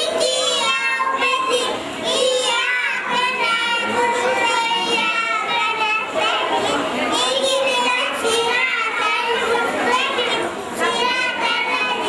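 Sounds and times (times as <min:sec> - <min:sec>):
children singing: 0:00.0 - 0:12.0.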